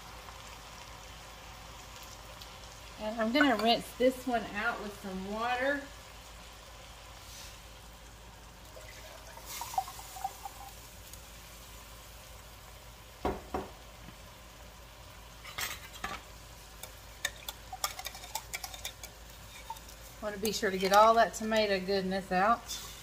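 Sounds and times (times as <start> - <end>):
food sizzling in a pot: 0.0 - 23.0
water pouring: 8.6 - 11.0
knock on pot: 13.2 - 13.8.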